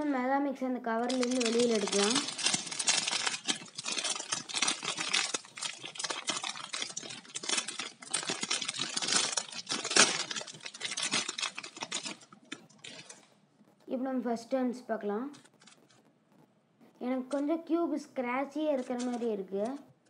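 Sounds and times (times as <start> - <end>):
plastic wrapper crinkling: 1.0 - 13.4, 15.3 - 16.1, 18.7 - 19.8.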